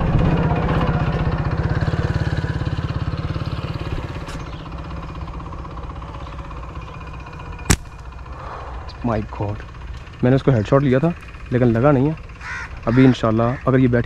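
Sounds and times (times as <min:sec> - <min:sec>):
slingshot snap: 0:07.7 - 0:08.0.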